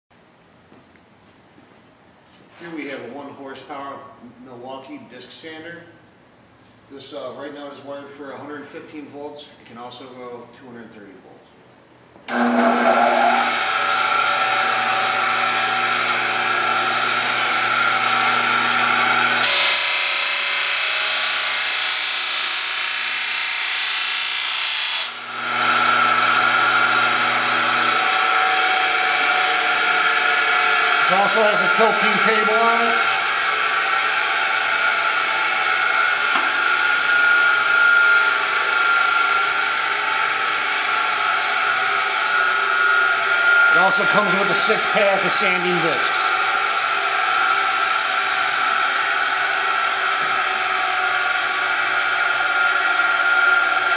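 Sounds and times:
disc sander motor running: 12.3s - 23.4s, 25.0s - 53.9s
machine whirring with high whine: 12.3s - 53.9s.

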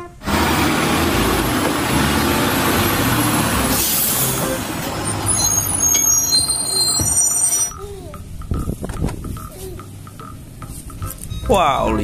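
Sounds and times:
garbage truck running: 0.0s - 7.9s
thin high ringing tones: 5.0s - 8.1s.

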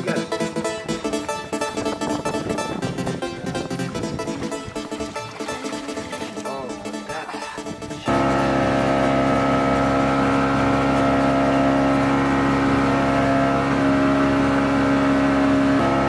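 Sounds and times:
boat engine humming: 0.0s - 16.0s.

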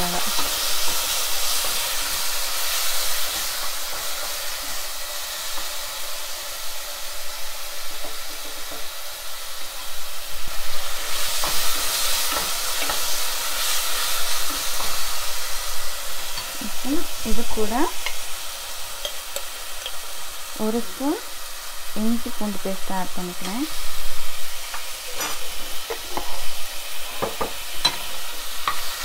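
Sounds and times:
vegetables sizzling in a pot: 0.0s - 29.0s
wooden spatula scraping a pan: 24.7s - 29.0s.

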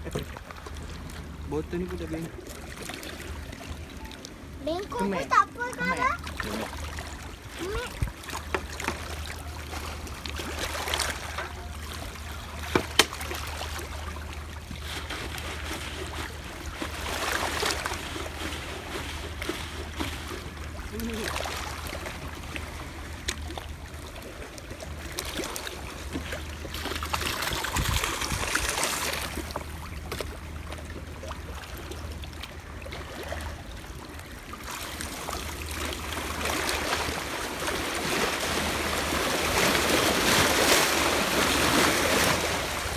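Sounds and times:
waves washing over rocks: 34.6s - 42.9s.

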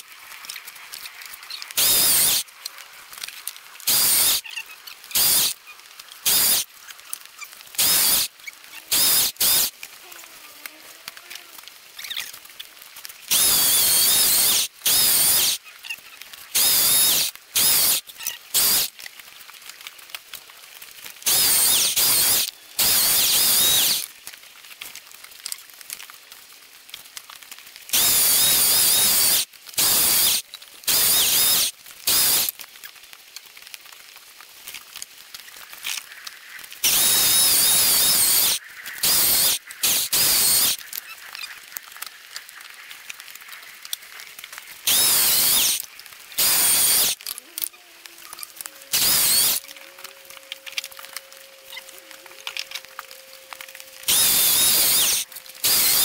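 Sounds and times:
electric chainsaw cutting logs: 1.7s - 2.4s, 3.2s - 4.4s, 5.1s - 5.6s, 6.2s - 6.7s, 7.7s - 8.3s, 8.9s - 9.9s, 13.3s - 15.6s, 16.5s - 19.0s, 21.2s - 24.1s, 27.9s - 32.6s, 36.8s - 40.8s, 44.9s - 45.8s, 46.4s - 47.3s, 48.9s - 49.7s, 52.5s - 56.0s.

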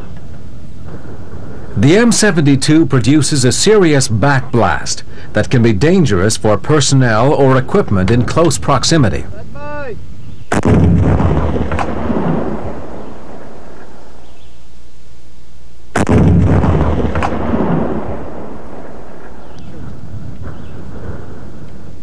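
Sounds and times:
rocket launcher blast echoing: 10.5s - 14.4s, 16.0s - 21.7s.

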